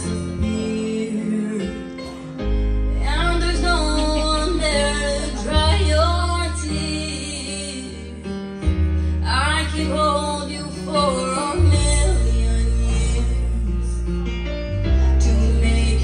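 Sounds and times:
bass notes: 0:00.0 - 0:16.0
guitar: 0:00.0 - 0:16.0
person singing: 0:00.0 - 0:16.0.

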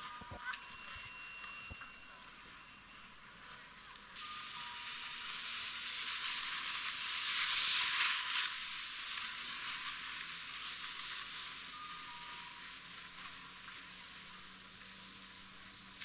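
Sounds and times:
sliding over crusty snow: 0:04.2 - 0:16.0.

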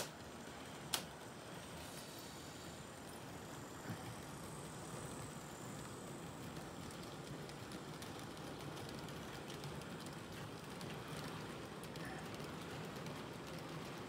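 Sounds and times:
faint wheel ticks on rails: 0:00.0 - 0:14.0
model train running: 0:00.0 - 0:14.0.

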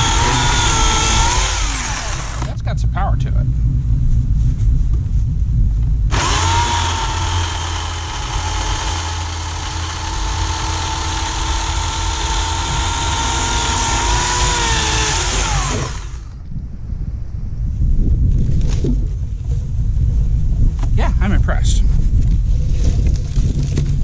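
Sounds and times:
electric chainsaw cutting limb: 0:00.0 - 0:02.6, 0:06.1 - 0:16.3.

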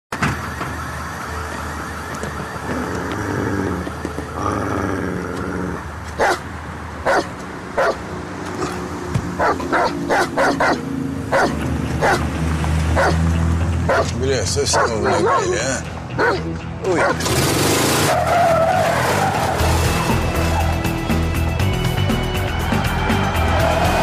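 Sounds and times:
vehicle engine rumble: 0:00.1 - 0:22.0
dog barking: 0:06.2 - 0:08.0, 0:09.4 - 0:12.3, 0:13.0 - 0:13.2, 0:13.9 - 0:15.5, 0:16.2 - 0:17.2.

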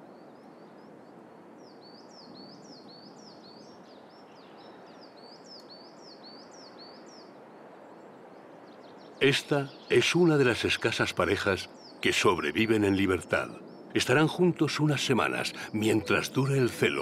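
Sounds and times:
woodland ambience hiss: 0:00.0 - 0:17.0
small bird chirping: 0:01.6 - 0:07.4.

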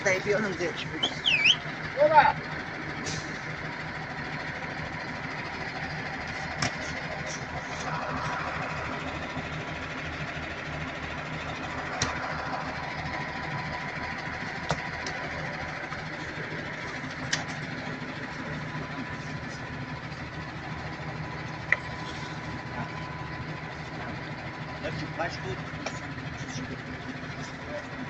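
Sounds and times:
diesel engine idling: 0:00.0 - 0:28.0.

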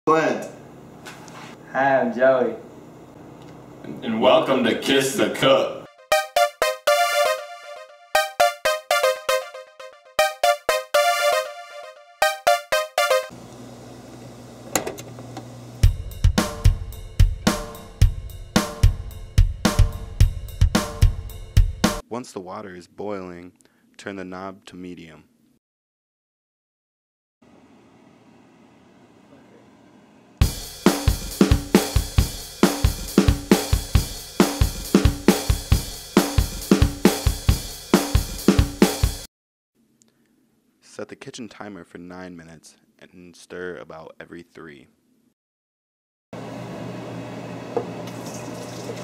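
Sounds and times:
music with drum beat: 0:15.8 - 0:22.0, 0:30.4 - 0:39.3.

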